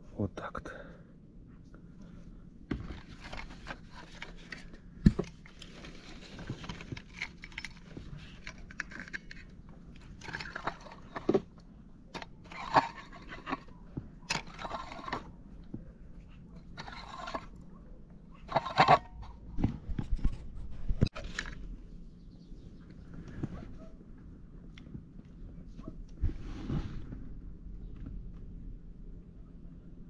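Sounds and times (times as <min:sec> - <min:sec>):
fishing tackle rustling and clicking: 0:02.7 - 0:17.7.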